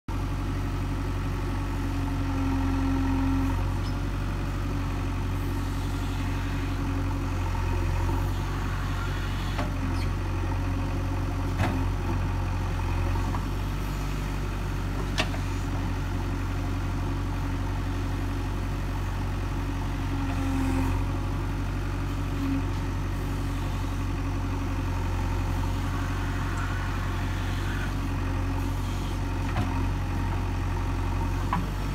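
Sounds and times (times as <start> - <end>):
diesel engine running: 0.1 - 31.9
hydraulic hum: 5.3 - 10.2, 22.0 - 31.9.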